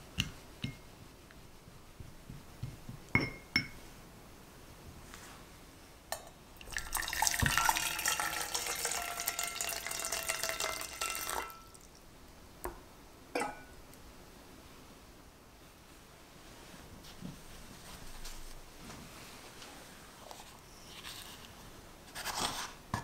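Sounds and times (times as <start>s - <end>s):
ramekin knocking in pot: 2.3s - 3.8s, 6.8s - 11.6s
water pouring into pot: 6.6s - 12.0s.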